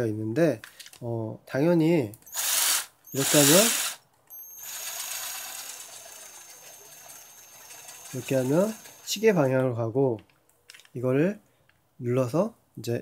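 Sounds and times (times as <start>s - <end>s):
cordless drill motor whine: 2.3s - 9.3s.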